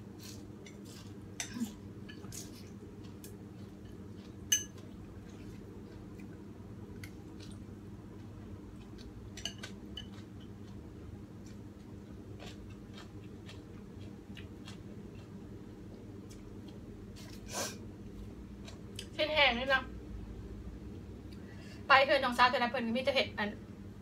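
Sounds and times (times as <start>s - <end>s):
chopsticks clinking on ceramic bowl: 4.5s - 4.8s.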